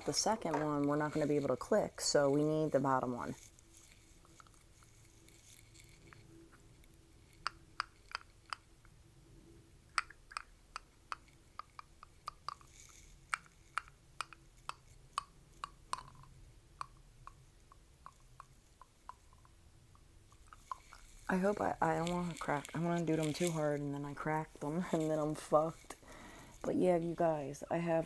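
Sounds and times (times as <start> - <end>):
dentures clicking together: 7.3 - 8.7, 9.9 - 21.3.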